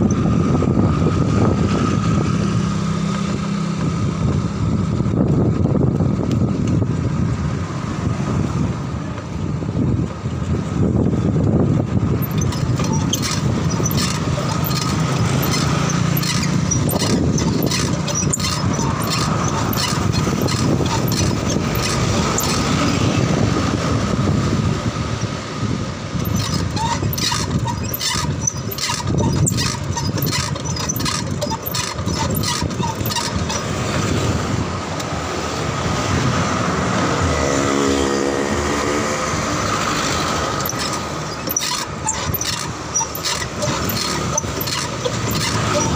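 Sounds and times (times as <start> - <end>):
road traffic: 0.0 - 45.9
truck engine running close: 0.0 - 45.9
wind on microphone: 0.0 - 45.9
bicycle clicks and rattles: 11.4 - 23.0, 26.2 - 34.2, 40.2 - 45.9.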